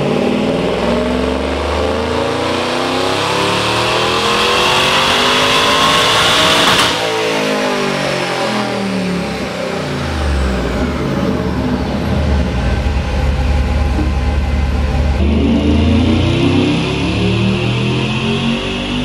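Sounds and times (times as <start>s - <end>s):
engine revving at full throttle: 0.0s - 19.0s
supercharger whine: 0.0s - 19.0s
engine low rumble: 9.0s - 19.0s.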